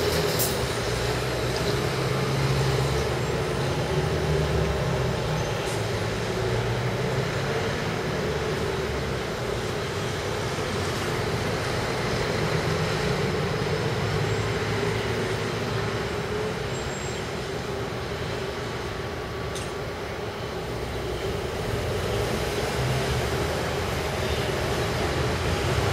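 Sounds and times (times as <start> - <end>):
train wheels rumbling: 0.0 - 25.9.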